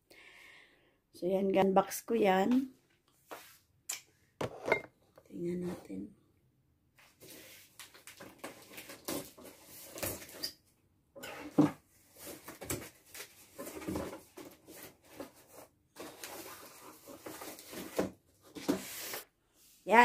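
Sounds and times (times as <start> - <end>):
cardboard flaps rustling and scraping: 11.4 - 19.3.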